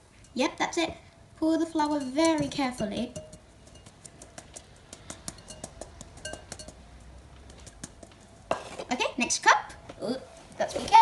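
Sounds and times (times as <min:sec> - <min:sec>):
sieve tapping on glass bowl: 0:01.9 - 0:04.0, 0:05.0 - 0:06.8.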